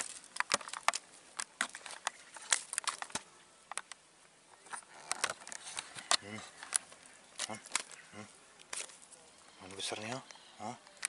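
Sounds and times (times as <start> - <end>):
sharp clicks and crackles: 0.0 - 4.0, 4.6 - 8.0.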